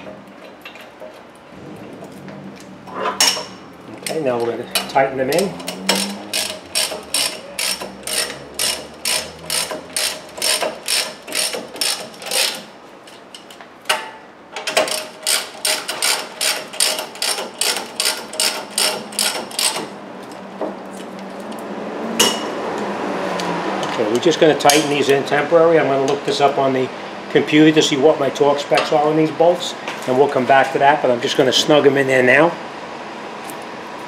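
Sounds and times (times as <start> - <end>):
ratchet wrench clicking: 4.8 - 12.7, 14.7 - 19.9.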